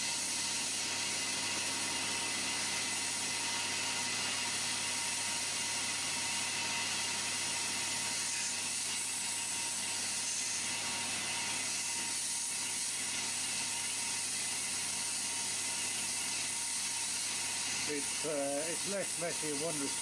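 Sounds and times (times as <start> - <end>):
milling machine cutting: 0.0 - 20.0
air jet hissing: 17.9 - 20.0.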